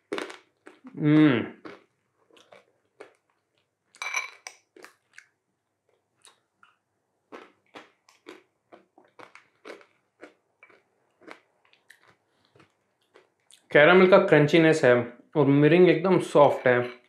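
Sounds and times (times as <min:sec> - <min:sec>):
caramel crunching while chewing: 0:00.0 - 0:13.7.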